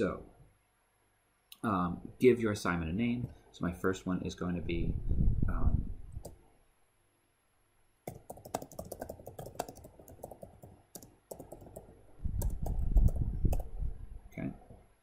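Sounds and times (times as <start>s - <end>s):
keyboard typing: 8.1s - 13.7s.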